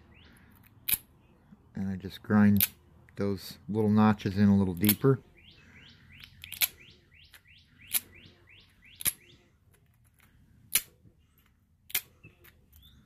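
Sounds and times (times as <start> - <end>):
bird chirping: 0.0 - 0.6, 4.7 - 9.5, 12.7 - 13.0
sharp stone clicks: 6.2 - 8.1, 9.0 - 9.2.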